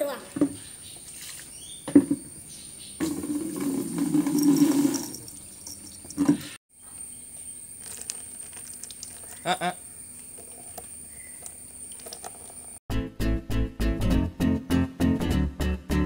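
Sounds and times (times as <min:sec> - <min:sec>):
water splashing in plastic basin: 0:03.0 - 0:05.1, 0:07.8 - 0:09.6, 0:10.4 - 0:12.8.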